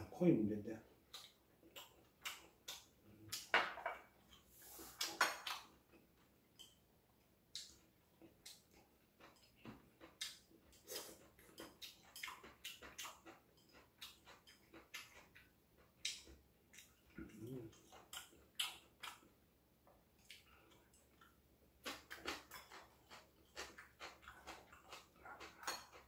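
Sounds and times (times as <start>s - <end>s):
quiet chewing: 0.8s - 26.0s
sniffs: 4.4s - 5.2s, 10.8s - 11.2s
chopsticks tapping ceramic dishes: 25.4s - 26.0s.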